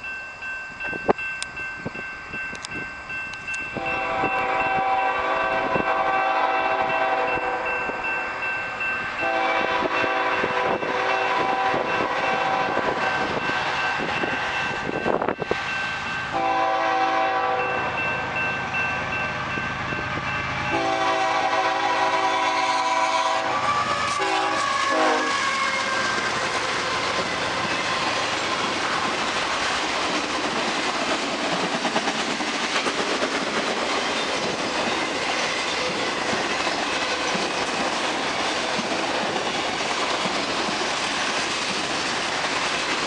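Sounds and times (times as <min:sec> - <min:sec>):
crossing signal bell ringing: 0:00.0 - 0:26.4
train rumble: 0:00.0 - 0:43.0
locomotive air horn blasts: 0:03.8 - 0:07.7, 0:09.2 - 0:13.0, 0:16.3 - 0:18.0, 0:20.2 - 0:26.1.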